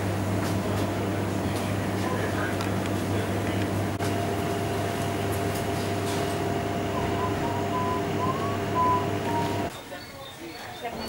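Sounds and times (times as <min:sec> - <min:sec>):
refrigerated cases humming: 0:00.9 - 0:09.7.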